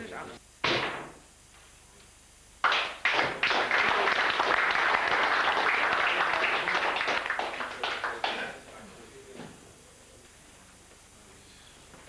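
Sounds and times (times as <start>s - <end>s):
audience applauding: 2.6s - 8.6s.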